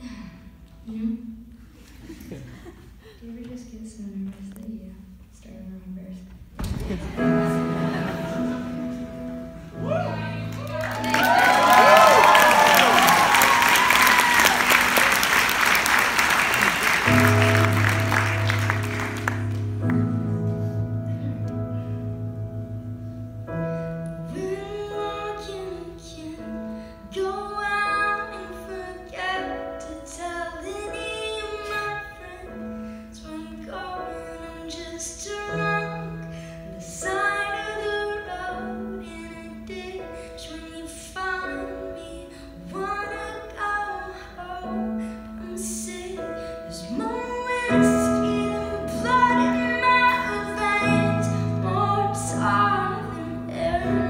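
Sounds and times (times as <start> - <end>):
sustained keyboard chords: 6.8 - 12.0, 14.2 - 54.0
woman singing: 24.2 - 54.0.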